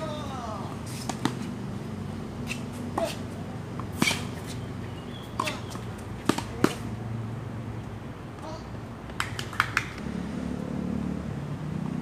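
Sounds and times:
tennis ball struck by rackets: 0.9s - 1.5s, 2.5s - 7.0s
tennis ball bouncing on hard court: 2.5s - 7.0s.

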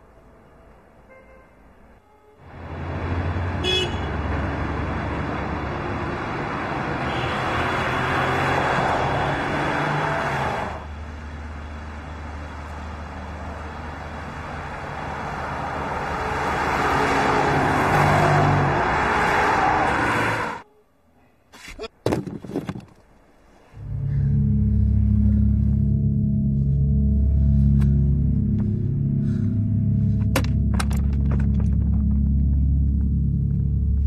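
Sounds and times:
car engine running: 23.8s - 34.0s.

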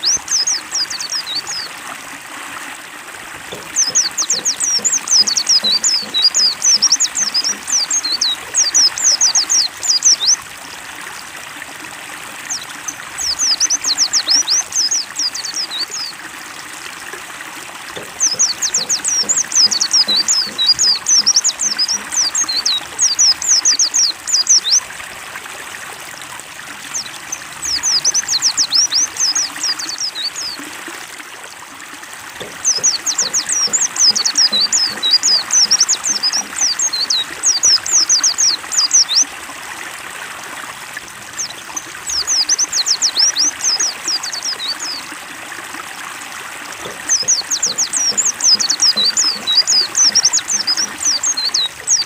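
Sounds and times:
bird twittering: 0.0s - 1.7s, 3.5s - 10.4s, 18.0s - 24.8s, 32.4s - 39.3s, 46.8s - 52.0s
water trickling: 0.0s - 52.0s.

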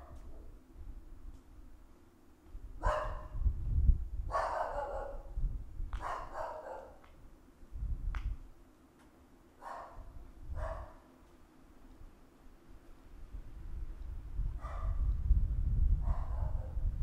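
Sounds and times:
dog barking: 2.8s - 3.4s, 4.3s - 5.4s, 6.0s - 7.0s, 9.6s - 11.1s, 14.6s - 15.1s, 16.0s - 16.8s.

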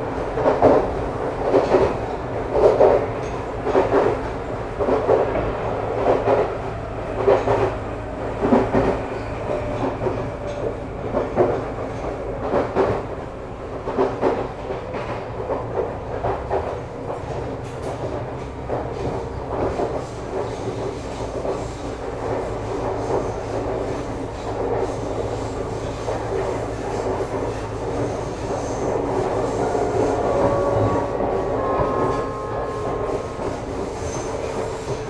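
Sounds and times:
train rumble: 0.0s - 35.0s
wheels clickety-clack: 0.2s - 35.0s
train traction whines: 13.4s - 35.0s.

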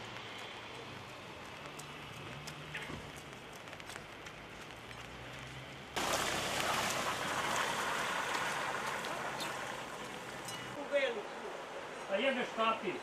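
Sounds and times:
raindrops ticking: 0.0s - 10.7s
rain hissing: 5.5s - 10.8s.

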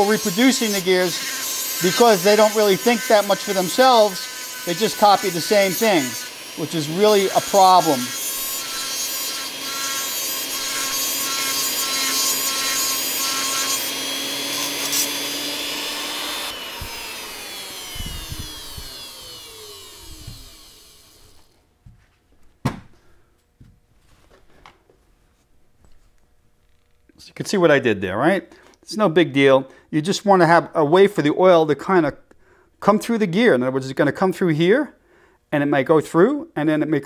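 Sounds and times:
rotary tool grinding steel: 0.0s - 21.6s
motor spinning down whine: 15.2s - 21.5s.

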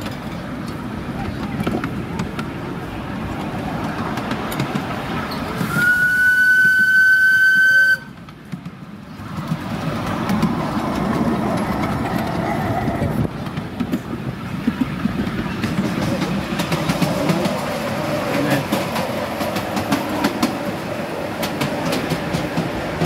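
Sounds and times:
miniature train running on rails: 0.0s - 23.0s
steam hissing: 5.5s - 8.1s
steam whistle: 5.6s - 8.1s.

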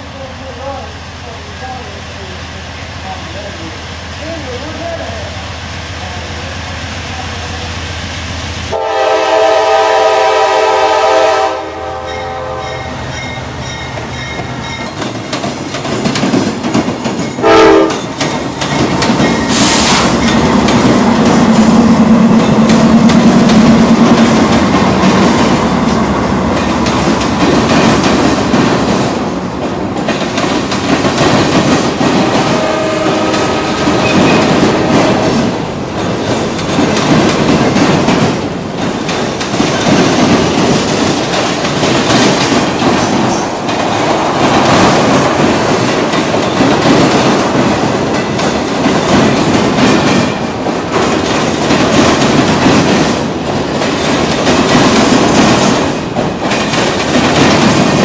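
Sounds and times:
train horn blast: 8.7s - 13.0s, 17.4s - 18.1s, 32.3s - 35.5s
train wheels clacking on rails: 12.1s - 58.0s.

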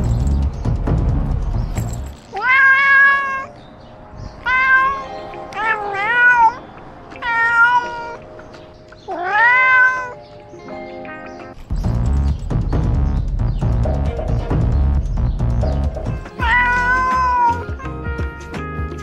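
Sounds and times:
quiet background music: 0.0s - 19.0s
cat meowing: 2.3s - 3.5s, 4.4s - 8.2s, 9.1s - 10.2s, 16.2s - 19.0s.

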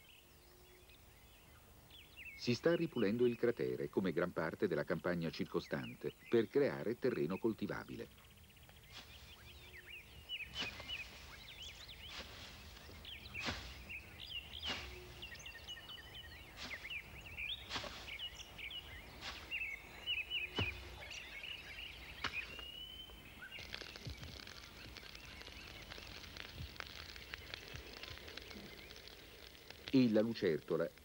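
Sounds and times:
small birds chirping: 0.0s - 31.0s
machete chopping through brush: 10.5s - 11.2s, 13.4s - 13.9s, 14.6s - 15.2s, 17.7s - 18.2s, 20.6s - 21.0s, 22.2s - 22.6s.

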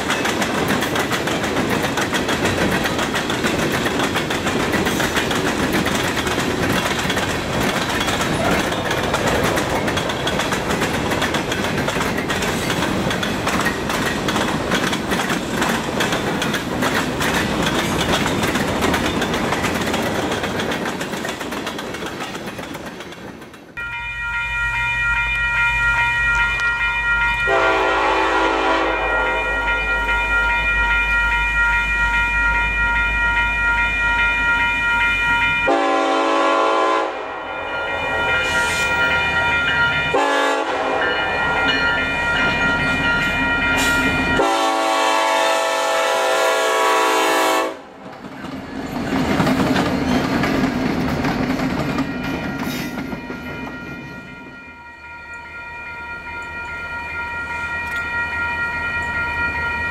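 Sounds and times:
locomotive engines and wheels passing: 0.0s - 36.5s, 37.4s - 45.0s, 47.7s - 59.9s
locomotive air horn chord: 27.4s - 30.2s, 35.6s - 39.0s, 40.1s - 41.4s, 44.4s - 47.9s.

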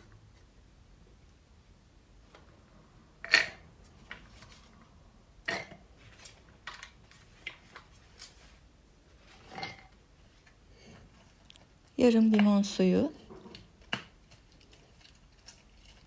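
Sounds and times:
soft rattle of cloves: 6.0s - 16.0s.

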